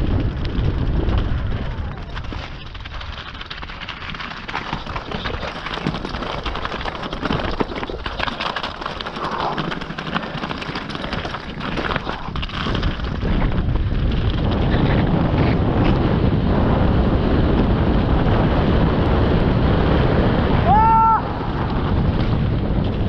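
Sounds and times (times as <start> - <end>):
bike rattling over rocks: 0.0 - 23.0
bike tyres crunching over scree: 0.0 - 23.0
stones clattering: 0.2 - 13.6.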